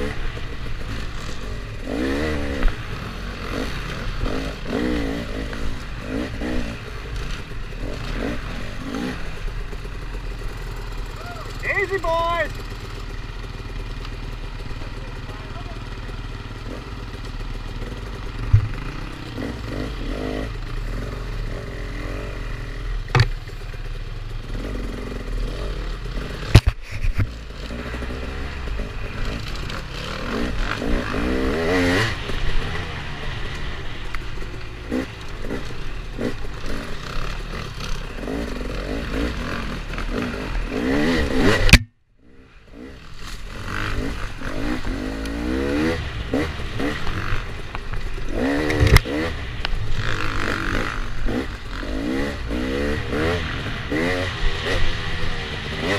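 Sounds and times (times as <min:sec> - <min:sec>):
dirt bike engines revving: 0:00.0 - 0:55.9
sharp knocks: 0:18.4 - 0:18.8, 0:23.1 - 0:23.4.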